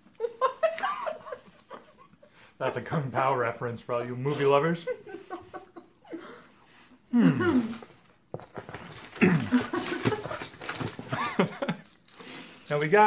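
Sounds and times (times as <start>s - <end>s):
snack packaging rustling: 7.5s - 12.8s.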